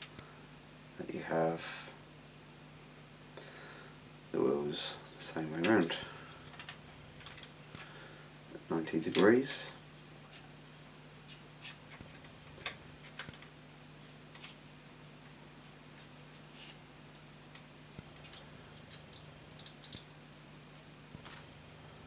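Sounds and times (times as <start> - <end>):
steady low hum: 0.0 - 22.0
small metal parts clicking: 18.2 - 20.1.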